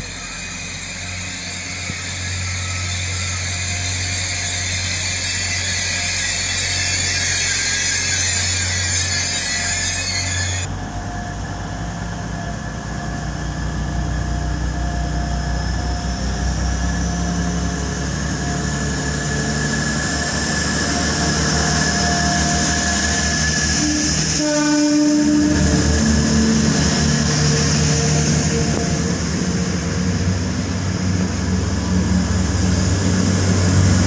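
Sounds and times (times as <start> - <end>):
steady whine: 0.0 - 24.4
train engine rumble: 0.0 - 34.0.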